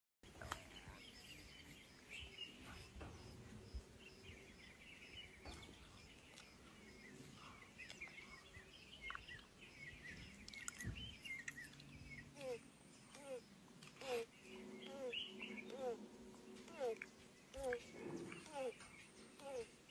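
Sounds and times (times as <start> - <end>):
faint birds chirping: 0.2 - 19.9
low rumble: 14.4 - 19.2.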